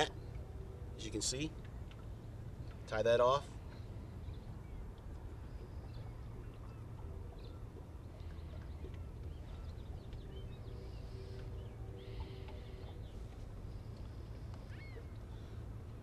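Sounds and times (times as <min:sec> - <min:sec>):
low rumble of wind and water: 0:00.0 - 0:16.0
faint bird chirps: 0:03.7 - 0:15.6.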